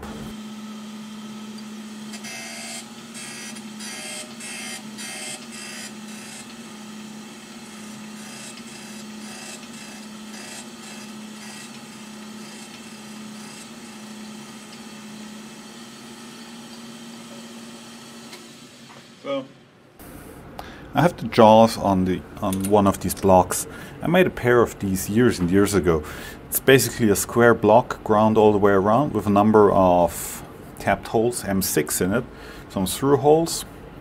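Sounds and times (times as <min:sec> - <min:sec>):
grinder motor humming: 0:00.0 - 0:19.2
abrasive wheel grinding metal: 0:00.9 - 0:15.7.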